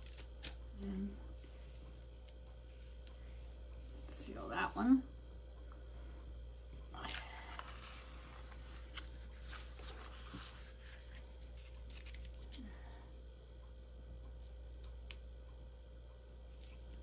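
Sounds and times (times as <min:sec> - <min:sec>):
cardstock rustling on table: 0:07.0 - 0:12.4.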